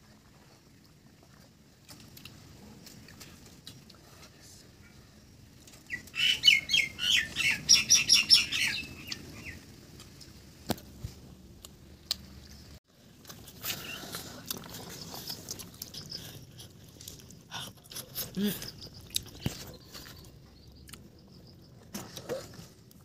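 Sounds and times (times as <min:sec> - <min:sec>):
songbird chirping: 0:05.8 - 0:09.7, 0:18.1 - 0:22.2.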